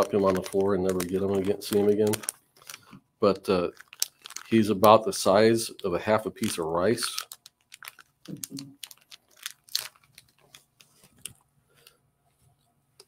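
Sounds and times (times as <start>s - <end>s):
plastic parts clicking: 0.3s - 2.8s.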